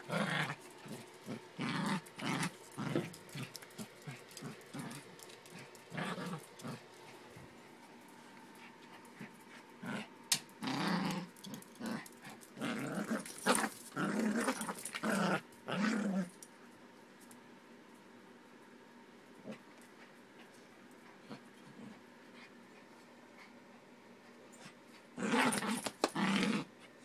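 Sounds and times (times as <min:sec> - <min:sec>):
small dog growling: 0:00.0 - 0:06.9, 0:09.1 - 0:16.3, 0:24.6 - 0:26.8.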